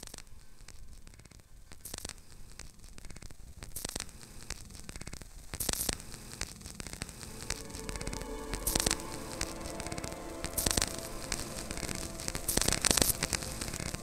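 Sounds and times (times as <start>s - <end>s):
synth pitched tones: 7.1s - 14.0s.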